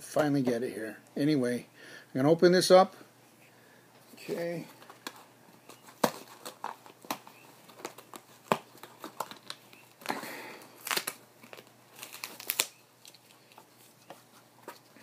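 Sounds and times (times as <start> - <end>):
packaging crinkling and tearing: 4.8 - 14.0.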